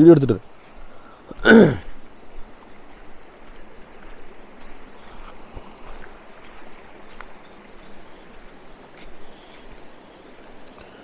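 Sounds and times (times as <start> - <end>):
stream flowing over rocks: 0.0 - 11.0
faint ticks: 3.4 - 11.0.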